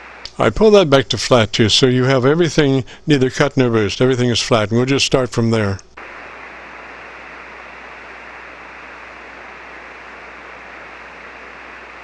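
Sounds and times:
faint low hum: 0.0 - 12.0
radio static hiss: 0.0 - 12.0.

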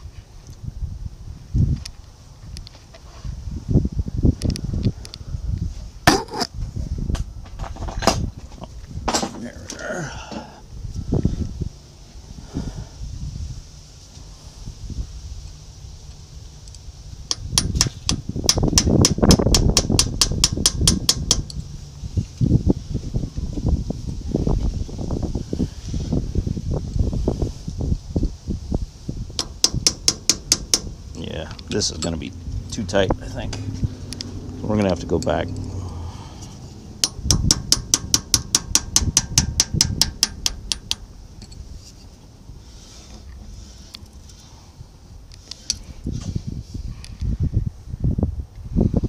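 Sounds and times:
hammer tapping steel punch: 17.3 - 21.5, 29.4 - 30.9, 37.0 - 41.0.

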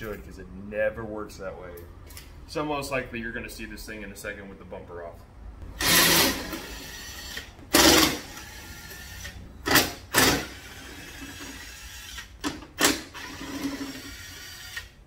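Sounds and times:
cordless drill running: 5.8 - 12.3, 12.9 - 15.0.

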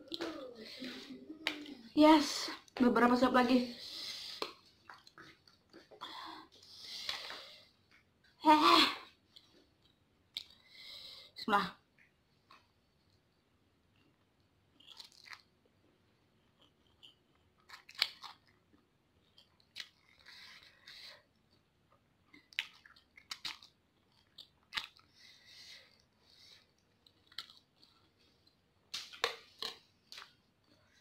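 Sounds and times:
chewing and slurping: 14.8 - 15.6, 16.4 - 21.6.

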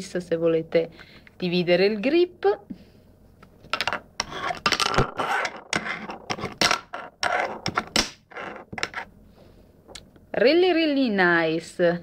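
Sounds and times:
fingerboard clicks and scrapes: 3.8 - 9.1.

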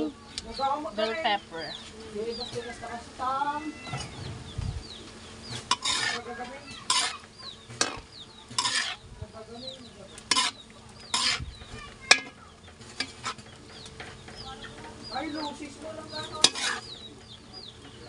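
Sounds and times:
sauce sizzling: 4.8 - 17.9
spatula scraping a wok: 5.4 - 18.0.

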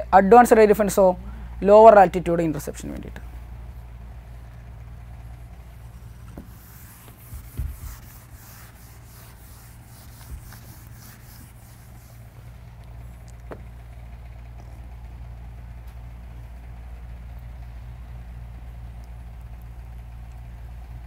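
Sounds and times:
low room hum: 0.0 - 21.0
faint scratchy rubbing: 5.8 - 12.2
dull knock: 7.2 - 8.1.

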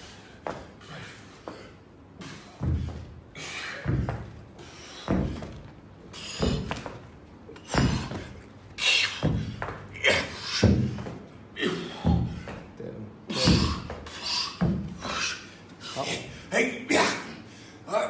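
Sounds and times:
dumbbells thudding on carpet: 3.8 - 4.4, 5.0 - 7.0, 7.6 - 8.3.

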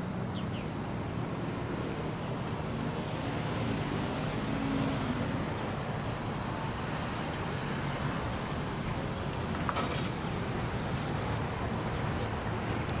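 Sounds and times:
car engines and tyres: 0.0 - 13.0.

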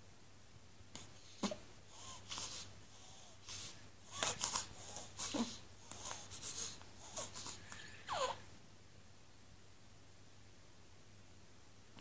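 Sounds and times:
baby snuffling and squeaking: 1.3 - 8.4.

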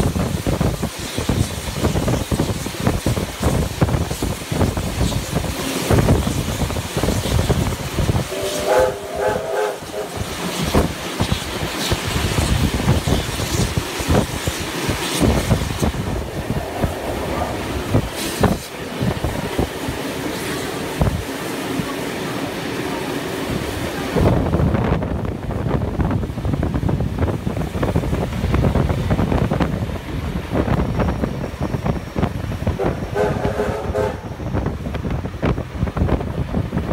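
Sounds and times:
train wheels clattering on rails: 0.0 - 22.4, 23.5 - 36.9
steam whistle toots: 8.2 - 10.3, 32.8 - 34.4.

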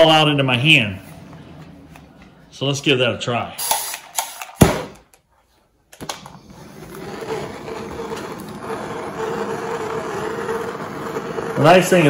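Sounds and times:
propane torch hissing: 6.4 - 12.0.

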